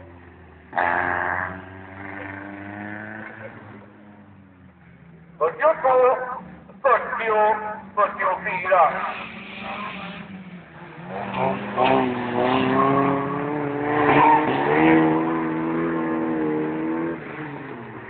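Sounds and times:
car engines revving hard: 0.0s - 18.0s.

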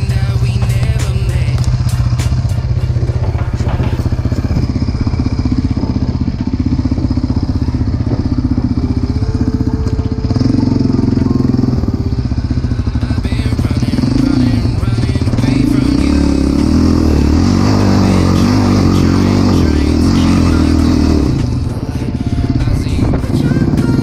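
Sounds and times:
quad engine running: 0.0s - 24.0s
clicks and knocks: 0.4s - 4.8s.

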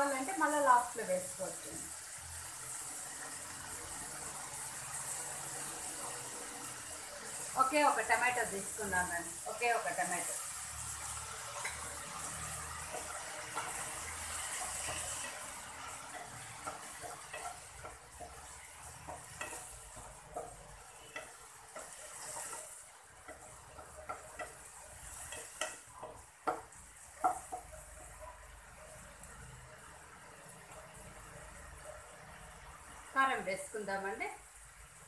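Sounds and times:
food sizzling: 0.0s - 35.0s
spatula scraping frying pan: 2.1s - 28.4s.

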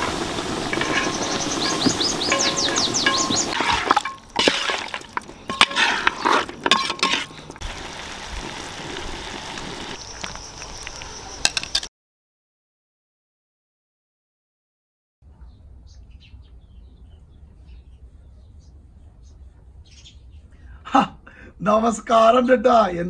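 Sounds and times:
metal utensils clinking on pot: 2.3s - 7.4s.

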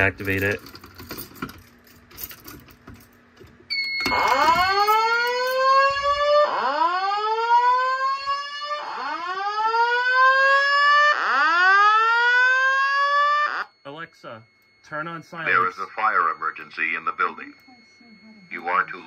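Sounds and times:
high-pitched tone: 12.1s - 19.0s.

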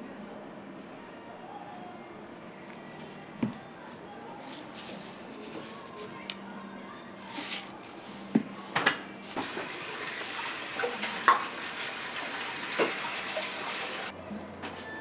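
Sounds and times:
tap running: 9.4s - 14.1s.

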